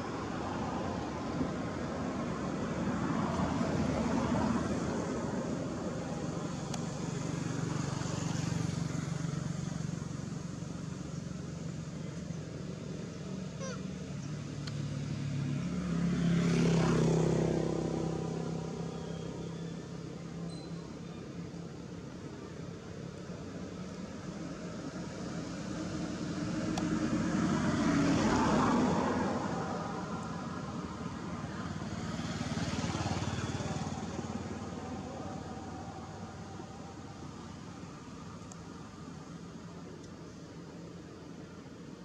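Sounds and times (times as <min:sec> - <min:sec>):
vehicle engine droning past: 0:14.8 - 0:20.1, 0:25.7 - 0:38.3.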